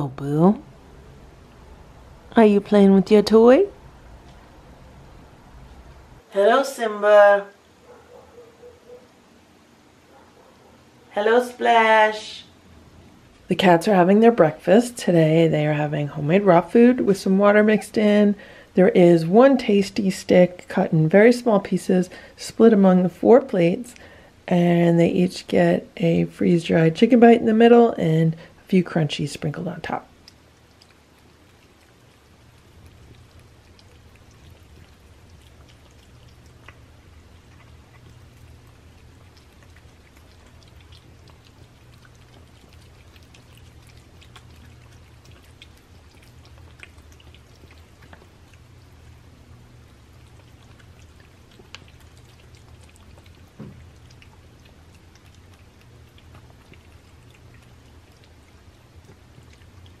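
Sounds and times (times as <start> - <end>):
steady low hum: 0.0 - 60.0
cats chewing and lapping food: 12.9 - 24.5, 25.1 - 60.0.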